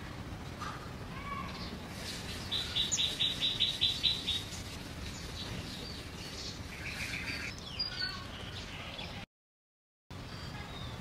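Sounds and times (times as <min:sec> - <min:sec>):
bird chirping: 0:01.5 - 0:09.2.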